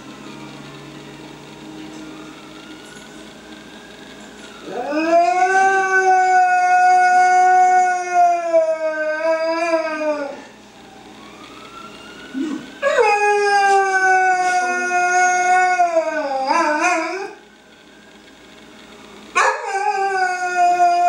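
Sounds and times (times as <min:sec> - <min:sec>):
dog howling: 0:04.6 - 0:10.5, 0:12.4 - 0:17.4, 0:19.4 - 0:21.0.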